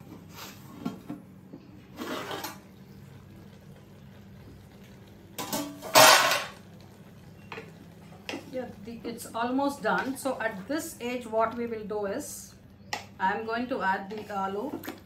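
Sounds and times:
low steady hum: 0.0s - 15.0s
metal lid scraping pot: 1.9s - 2.6s
metal lid clattering: 5.4s - 6.6s.

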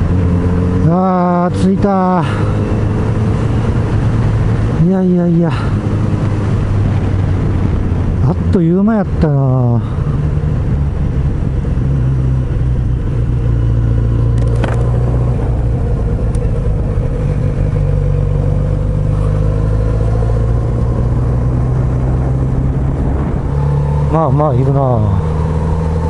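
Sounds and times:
motorcycle engine idling: 15.5s - 19.4s.

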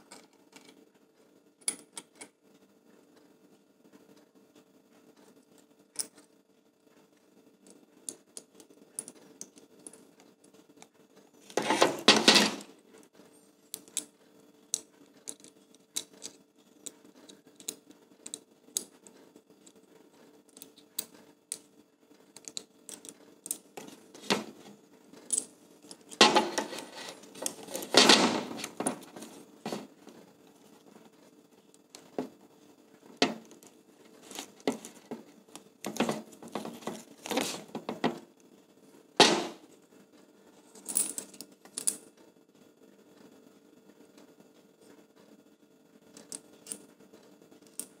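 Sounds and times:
handling noise: 11.6s - 12.7s, 23.8s - 30.3s, 33.1s - 38.3s, 39.2s - 39.7s
small metal screws clicking and rattling: 14.7s - 19.8s, 22.3s - 24.6s.

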